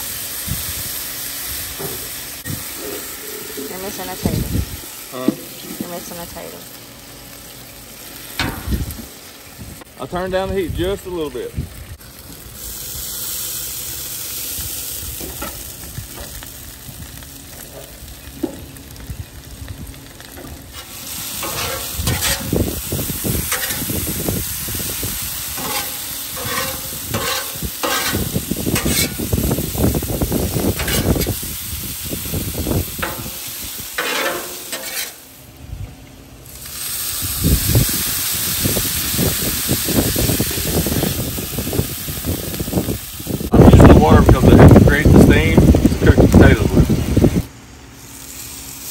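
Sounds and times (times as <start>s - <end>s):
potatoes sizzling on a griddle: 0.0s - 35.6s, 36.2s - 48.9s
water hissing on a hot griddle: 0.0s - 35.6s, 36.4s - 48.9s
metal spatula scraping and clattering: 21.4s - 22.5s, 23.5s - 23.9s, 25.6s - 29.2s, 30.8s - 31.2s, 34.0s - 35.2s.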